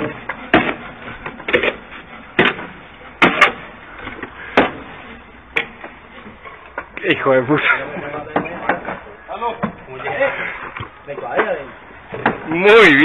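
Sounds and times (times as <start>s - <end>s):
bricks and mortar knocking and slapping: 0.0s - 1.8s, 2.4s - 4.9s.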